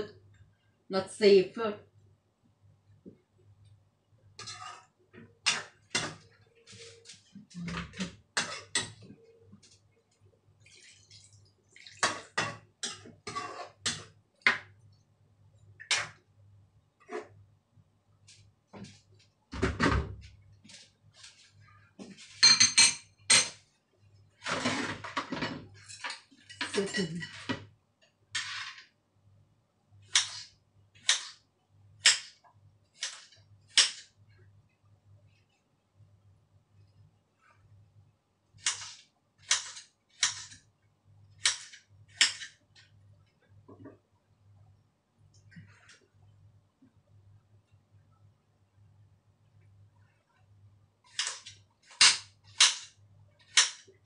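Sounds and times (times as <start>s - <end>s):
ladle scraping a frying pan: 4.4s - 7.1s, 8.4s - 9.0s, 12.0s - 14.1s, 24.4s - 27.5s
water pouring into a pan: 10.6s - 12.4s.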